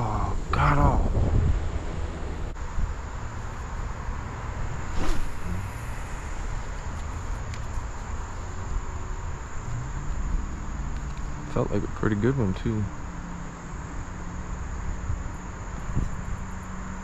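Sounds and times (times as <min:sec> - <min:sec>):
insects buzzing: 0:00.0 - 0:17.0
rushing background noise: 0:00.0 - 0:17.0
brief louder sound: 0:04.8 - 0:06.7.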